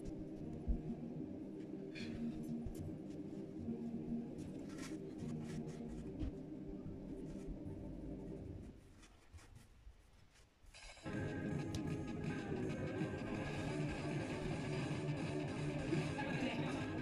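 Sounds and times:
steady low hum: 0.0 - 9.3, 11.0 - 17.0.

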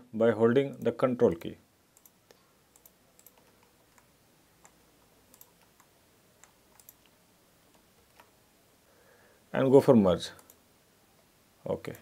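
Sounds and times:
computer mouse clicks: 2.0 - 8.3, 10.4 - 10.6.

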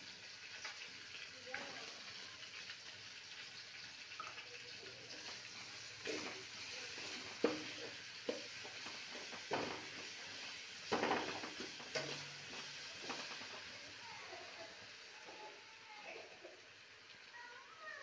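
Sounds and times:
food sizzling in oil: 0.0 - 18.0
metal spatula scraping pan: 6.0 - 13.6.

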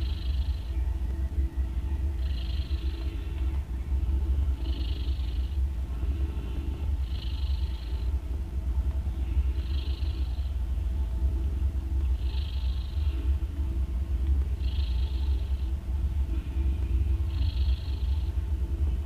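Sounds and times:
cat purring: 0.0 - 0.8, 1.8 - 10.6, 12.0 - 19.0
cat snoring breath: 4.6 - 5.6, 6.3 - 8.0, 12.2 - 13.1, 14.6 - 15.5, 17.3 - 18.2.

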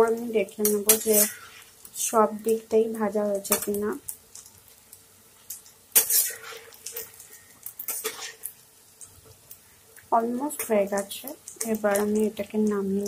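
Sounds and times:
oil frying: 0.0 - 13.0
metal utensil scraping a pan: 0.6 - 1.8, 5.9 - 8.6.

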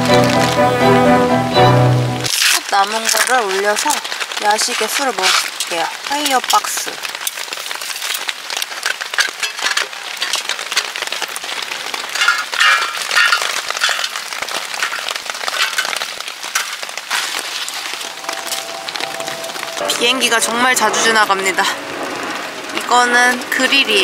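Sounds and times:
rain pattering on a tent: 0.0 - 1.3, 1.9 - 24.0
light metallic clinks and rattles: 12.2 - 16.8.

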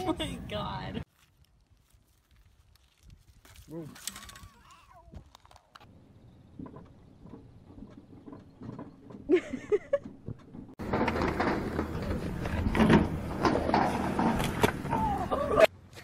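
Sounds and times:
skateboard wheels rolling on concrete: 5.0 - 15.7
skateboard and rider knocking down: 10.8 - 15.3.

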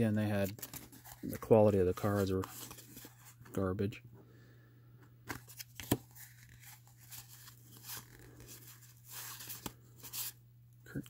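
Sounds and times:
cards rustling and clicking: 0.2 - 3.6, 5.2 - 11.0.

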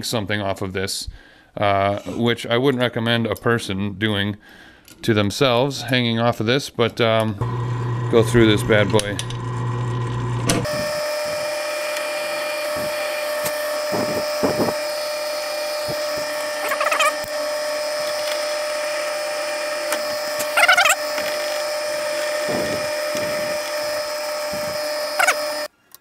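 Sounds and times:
drill press running: 7.4 - 25.7
drill bit screeching in steel: 10.6 - 25.7.

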